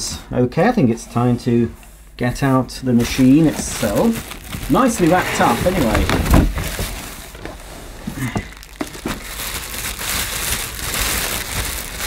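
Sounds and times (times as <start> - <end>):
plastic bag crinkling: 3.0 - 12.0.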